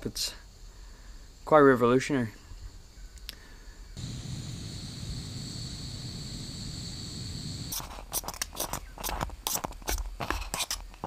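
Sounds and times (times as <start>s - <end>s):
gas stove burner hissing: 4.0s - 7.9s.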